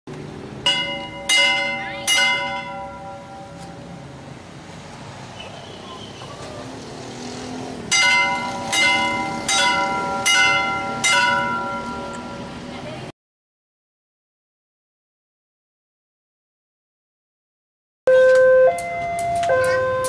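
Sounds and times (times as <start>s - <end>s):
iron warning bell struck: 0.6s - 4.0s, 7.9s - 12.7s.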